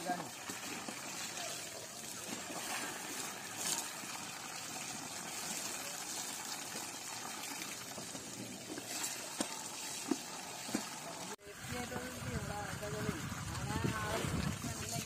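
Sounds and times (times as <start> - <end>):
water running and splashing: 0.0 - 15.0.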